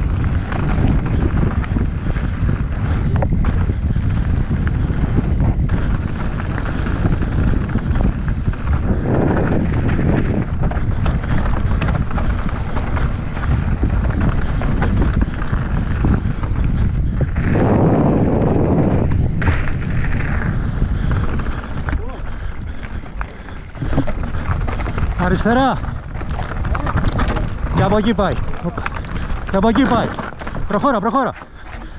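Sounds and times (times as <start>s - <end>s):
bike rattling: 0.0s - 31.9s
wind rumble on microphone: 0.0s - 31.9s
tyres crunching over stones: 19.2s - 31.9s.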